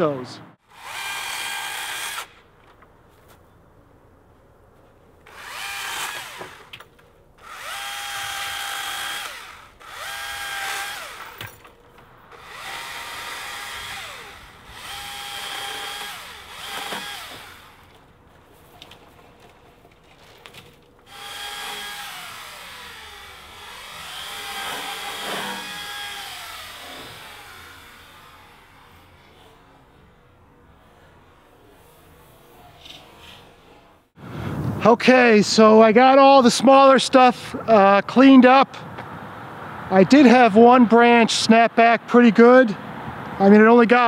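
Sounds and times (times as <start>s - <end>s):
battery chainsaw cutting branches: 0.6s - 2.5s, 5.2s - 11.6s, 12.2s - 18.8s, 20.7s - 33.7s.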